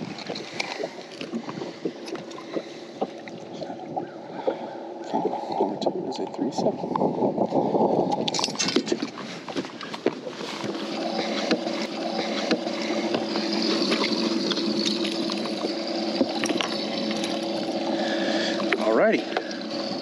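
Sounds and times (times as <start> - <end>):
water splashing: 0.0 - 5.8, 8.5 - 20.0
pump humming: 0.0 - 6.1, 9.8 - 20.0.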